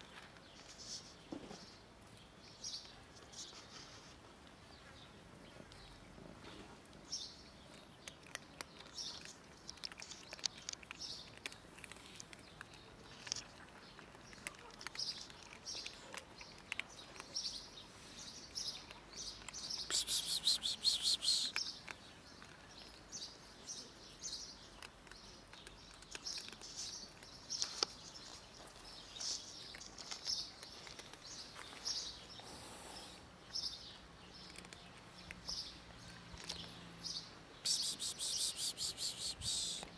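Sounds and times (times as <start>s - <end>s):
kittens crunching dry kibble: 0.0s - 39.9s
small birds chirping: 0.0s - 39.9s.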